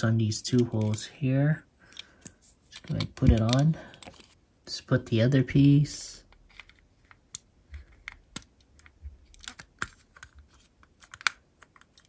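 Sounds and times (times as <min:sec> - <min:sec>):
plastic parts clicking: 0:01.9 - 0:04.4, 0:06.3 - 0:12.0.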